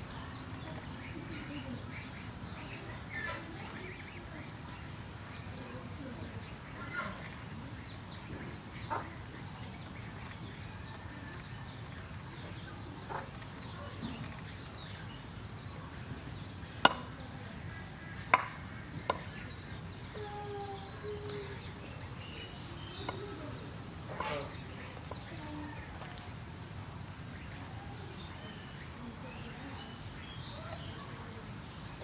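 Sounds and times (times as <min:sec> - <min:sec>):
low background noise: 0:00.0 - 0:32.0
goslings peeping: 0:06.4 - 0:20.2, 0:20.9 - 0:26.5.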